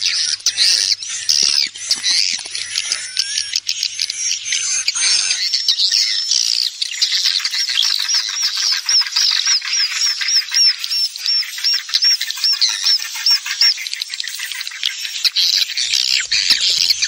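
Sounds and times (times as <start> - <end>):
repeating high chirp: 0.0 - 6.3
birds chirping and twittering: 0.0 - 17.0.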